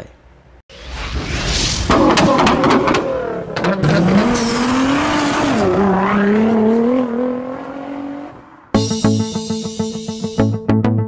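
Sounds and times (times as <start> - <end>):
car engine revving high: 2.6 - 8.7
guitar and bass music: 8.7 - 11.0.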